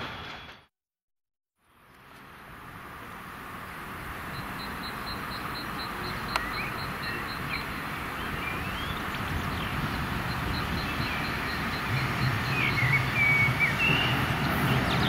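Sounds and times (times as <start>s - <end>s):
birds chirping: 3.6s - 15.0s.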